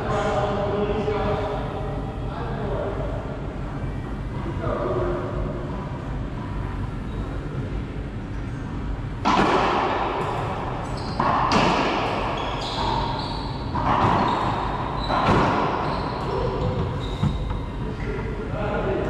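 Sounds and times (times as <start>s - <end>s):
ball hits echoing in court: 9.2s - 10.5s, 11.2s - 13.1s, 13.7s - 17.6s.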